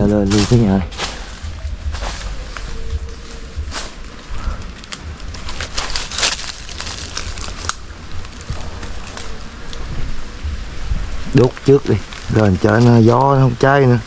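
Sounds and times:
rustling handling sounds: 0.0s - 10.2s
wind rumbling on microphone: 0.0s - 14.0s.

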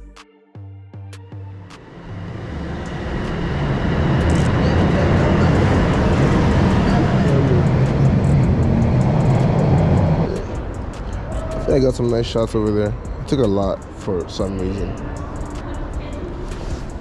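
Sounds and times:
subway train rumbling: 1.8s - 17.0s.

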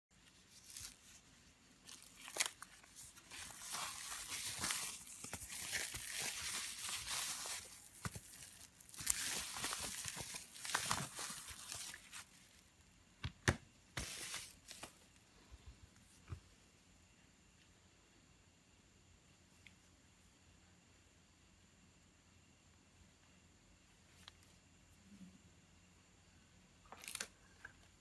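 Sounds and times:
foam wrap and plastic bag crinkling: 0.2s - 12.7s, 14.0s - 15.0s.

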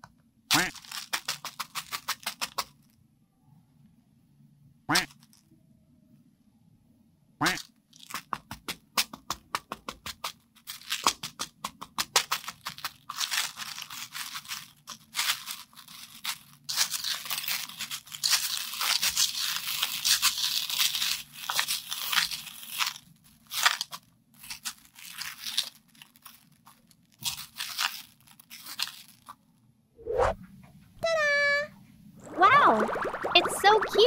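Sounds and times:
candies rattling in plastic tub: 0.6s - 2.9s, 7.9s - 29.4s.

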